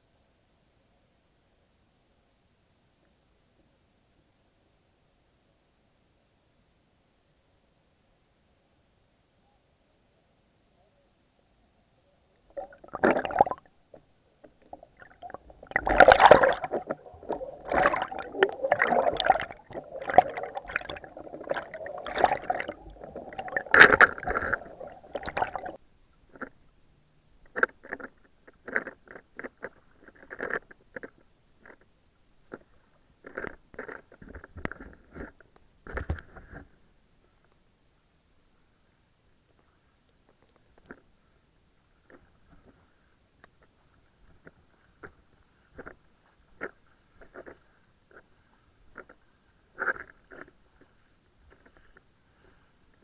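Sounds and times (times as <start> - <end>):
water sloshing and splashing: 12.5 - 26.5.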